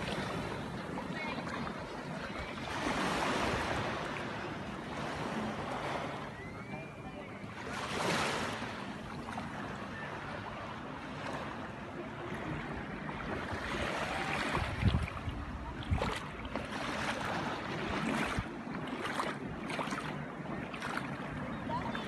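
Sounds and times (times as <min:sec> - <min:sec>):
small waves lapping on shore: 0:00.0 - 0:22.0
wind buffeting microphone: 0:13.3 - 0:22.0.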